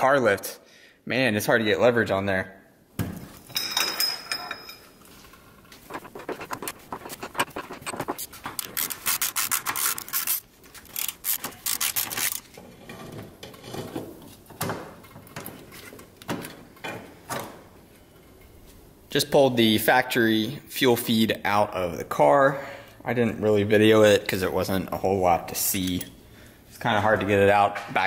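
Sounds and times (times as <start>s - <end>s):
metal scraping and clicking: 3.6s - 14.0s.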